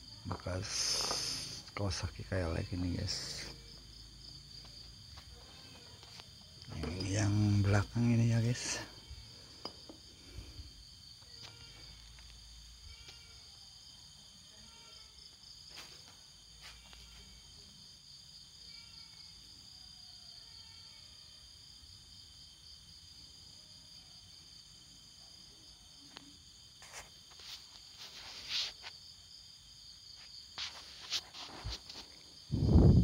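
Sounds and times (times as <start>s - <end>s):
crickets trilling: 0.0s - 33.0s.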